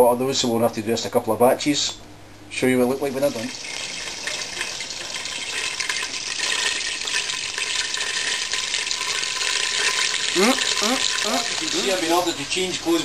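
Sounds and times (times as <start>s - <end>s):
butter sizzling in a pot: 3.2s - 13.0s.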